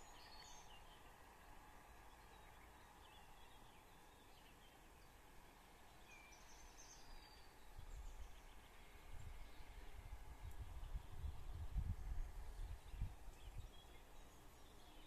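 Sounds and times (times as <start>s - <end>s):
faint outdoor hiss: 0.0s - 15.0s
wind rumble on microphone: 7.2s - 14.3s.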